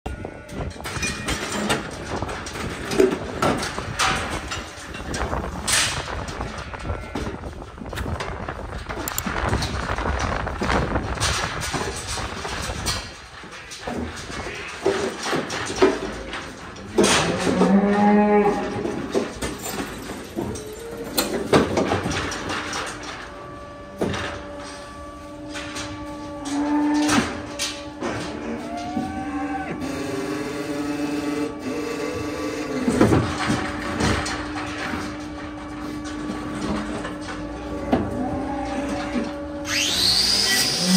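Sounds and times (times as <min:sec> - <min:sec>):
metal clanks and knocks: 0:00.1 - 0:29.9, 0:32.5 - 0:39.7
cow mooing: 0:17.0 - 0:18.9, 0:23.8 - 0:33.0.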